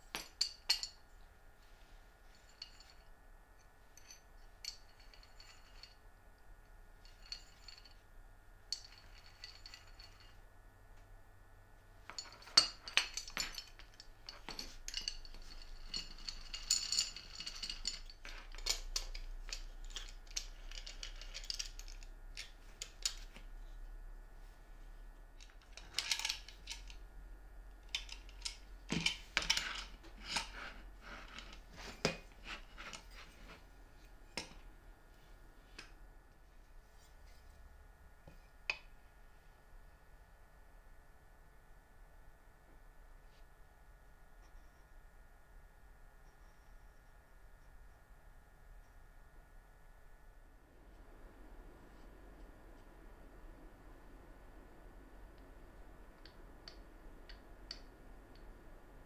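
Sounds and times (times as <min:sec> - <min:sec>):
metal clamp clicking and clinking: 0:12.1 - 0:23.5, 0:27.8 - 0:33.6.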